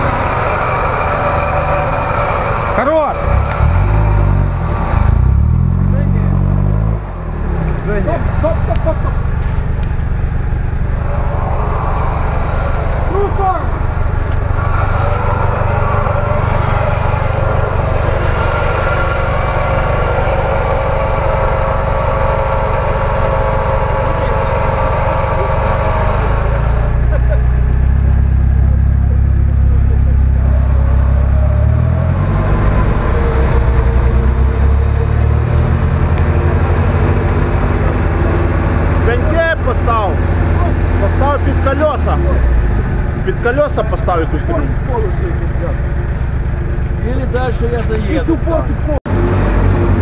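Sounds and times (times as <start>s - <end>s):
truck engine revving under load: 0.0s - 50.0s.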